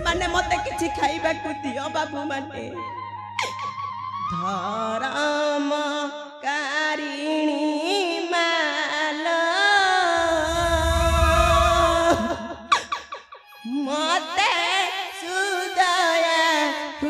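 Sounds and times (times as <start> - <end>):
low rumble: 0.0 - 1.6, 10.2 - 12.7.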